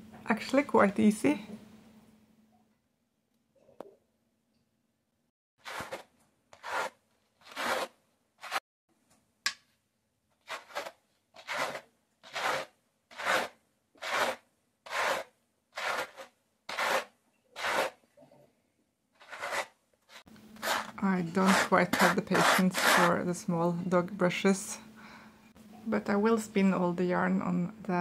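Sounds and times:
scratchy brushing strokes: 5.6s - 8.6s, 10.4s - 18.0s, 19.2s - 23.2s.

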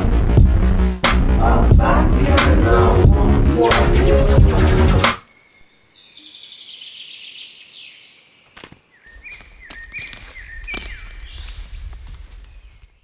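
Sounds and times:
low rumble: 0.0s - 5.0s
backing music: 0.0s - 5.2s
high swishing whoosh: 1.4s - 5.2s
birds chirping: 5.2s - 13.0s.

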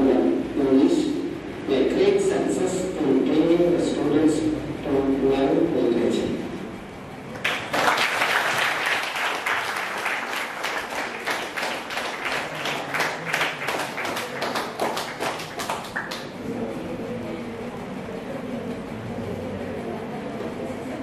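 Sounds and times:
audience applauding: 7.4s - 16.4s.

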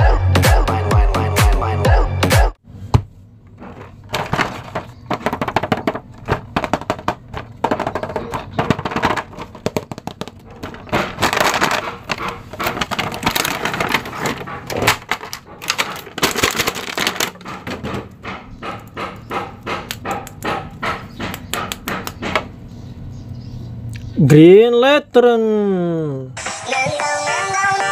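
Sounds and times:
plastic packaging crinkling: 3.5s - 17.7s.

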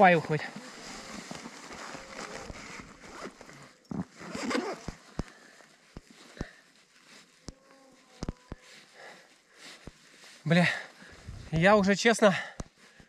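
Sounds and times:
nylon suit rustling: 0.2s - 11.8s.

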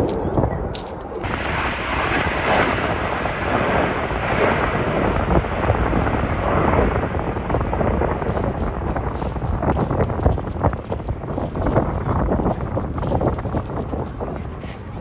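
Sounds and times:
jets roaring past: 0.0s - 9.6s.

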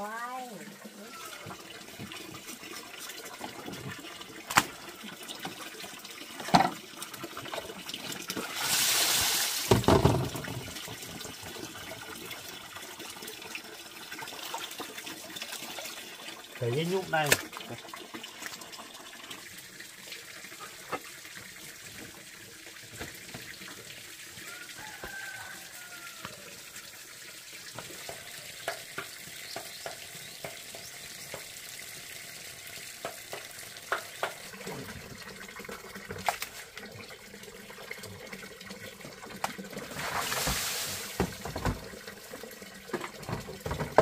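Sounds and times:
water sloshing in a plastic basin: 14.3s - 19.5s, 34.3s - 44.0s.

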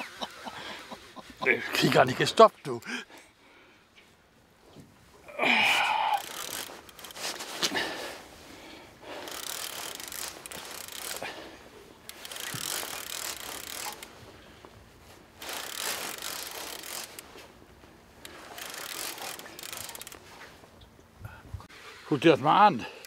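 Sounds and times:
fishing reel drag buzzing: 5.8s - 7.2s, 9.0s - 11.4s, 12.0s - 14.3s, 15.4s - 17.4s, 18.2s - 20.3s.

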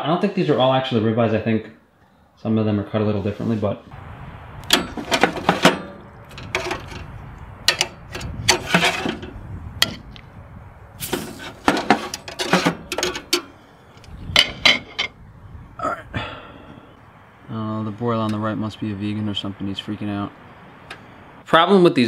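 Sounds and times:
steady low rumble: 3.9s - 20.6s
metal grate clanking and rattling: 4.7s - 10.0s, 11.0s - 13.6s, 14.4s - 15.2s.

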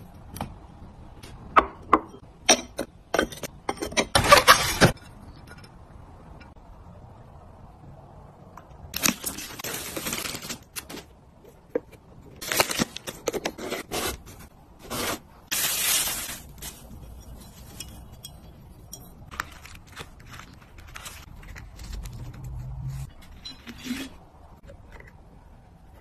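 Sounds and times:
tissues rustling from a box: 9.0s - 11.1s, 12.4s - 17.8s.

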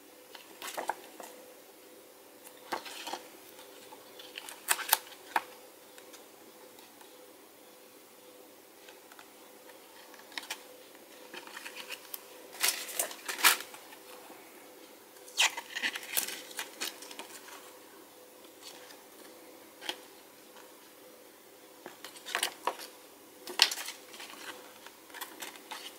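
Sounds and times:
paper and card rustling: 9.8s - 14.1s, 23.5s - 25.9s.

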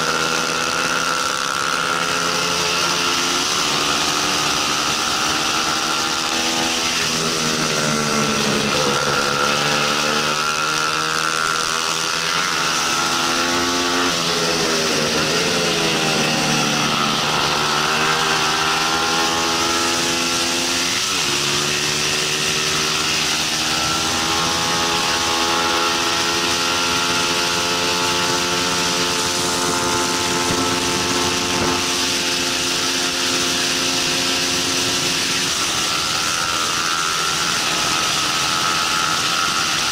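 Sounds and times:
motorcycle engine revving: 0.0s - 39.9s
wind noise: 22.8s - 38.9s.

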